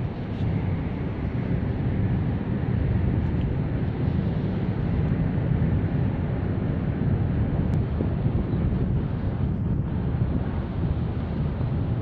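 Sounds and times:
wind buffeting microphone: 0:00.0 - 0:12.0.

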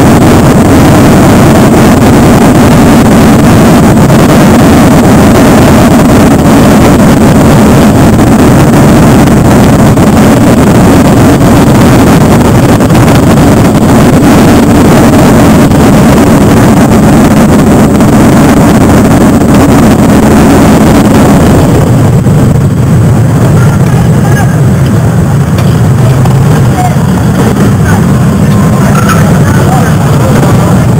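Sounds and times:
motorcycle engines rumbling: 0:00.0 - 0:30.9.

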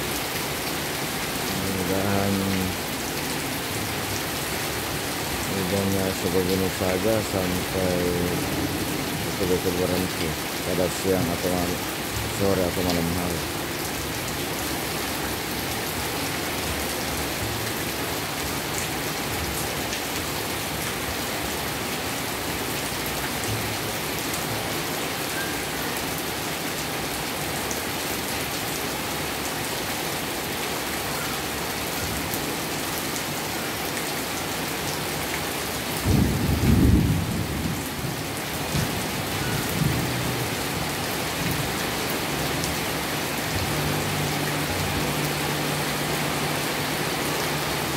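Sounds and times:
heavy rain falling: 0:00.0 - 0:47.9
low thunder rumbles: 0:36.0 - 0:40.1.

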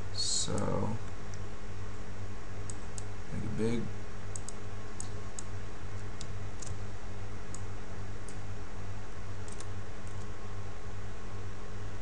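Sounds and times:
low electrical hum: 0:00.0 - 0:12.0
mouse and keyboard clicks: 0:09.5 - 0:10.3.

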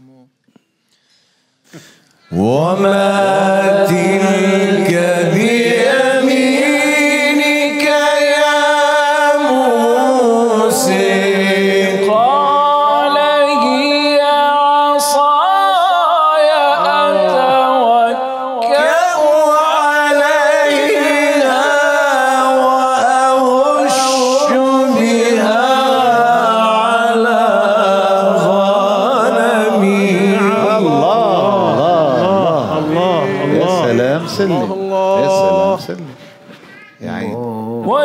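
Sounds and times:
man reciting melodically: 0:02.1 - 0:36.4, 0:37.0 - 0:38.0
second man reciting: 0:18.6 - 0:38.0.

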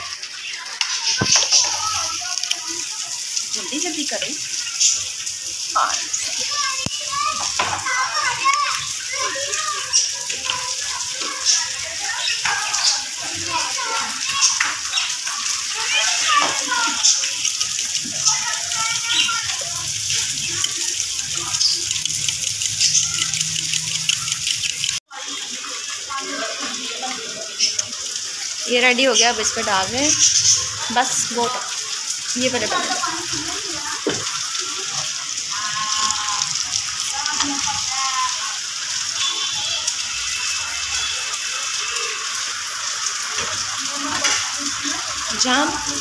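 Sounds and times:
egg sizzling in oil: 0:00.3 - 0:25.1.

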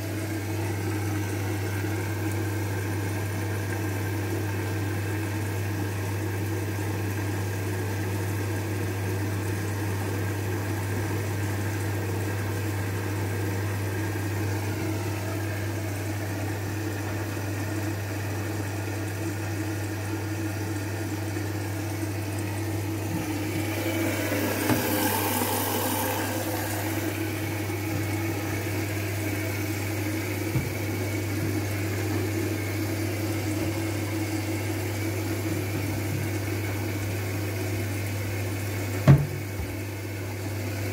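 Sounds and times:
washing machine hum: 0:00.0 - 0:40.9
water rushing: 0:23.0 - 0:37.1
laundry knocking in drum: 0:39.0 - 0:39.8.

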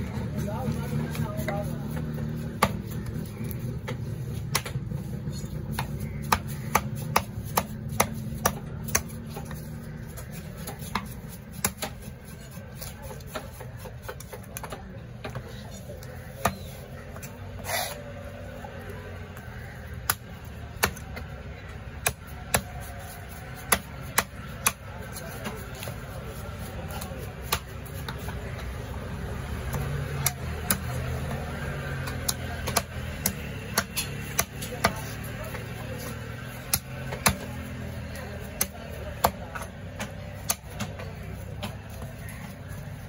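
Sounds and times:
cleaver chopping on wooden block: 0:01.4 - 0:04.8, 0:05.7 - 0:12.1, 0:20.0 - 0:21.3, 0:21.9 - 0:28.8, 0:29.5 - 0:42.5.

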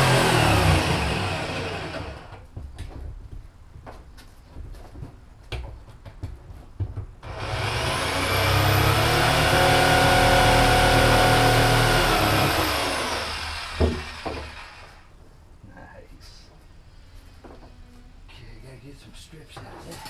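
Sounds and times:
power tool motor whining: 0:00.0 - 0:02.4, 0:07.2 - 0:15.0
sharp knock: 0:13.8 - 0:14.6.

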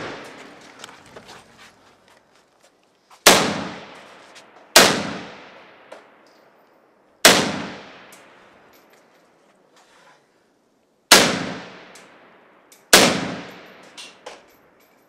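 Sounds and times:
rifle shots echoing: 0:00.0 - 0:00.6, 0:03.2 - 0:06.0, 0:07.2 - 0:08.6, 0:11.1 - 0:14.0.

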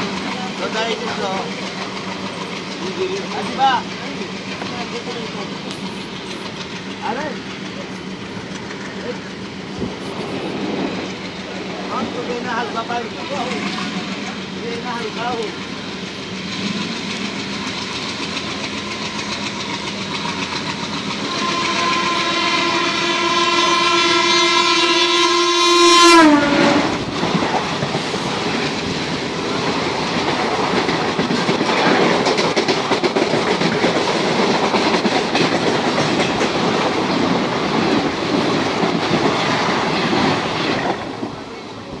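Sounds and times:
train running noise: 0:00.0 - 0:42.0
train horn: 0:21.2 - 0:27.0.

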